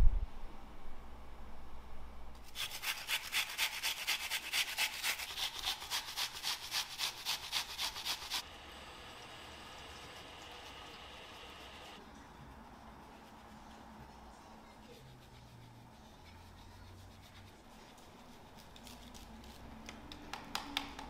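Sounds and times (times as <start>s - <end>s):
food rasped on a metal grater: 2.4s - 8.4s.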